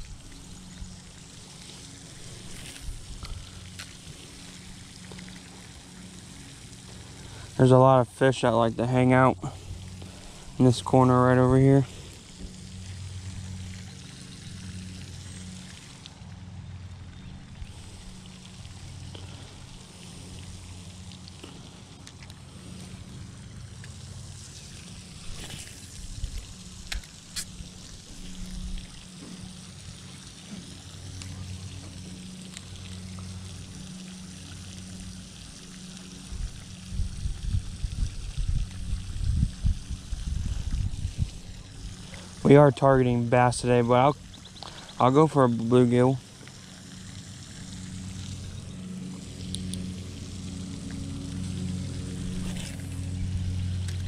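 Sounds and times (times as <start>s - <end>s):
low hum: 0.0s - 54.0s
water trickling and lapping: 0.0s - 54.0s
wind buffeting microphone: 36.3s - 41.8s.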